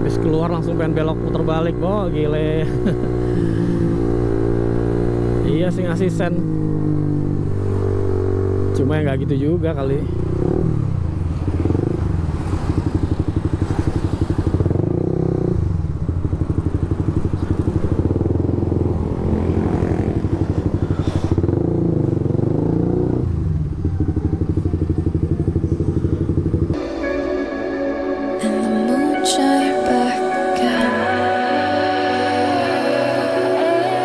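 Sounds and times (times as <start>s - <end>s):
motorcycle engine revving: 0.0s - 26.9s.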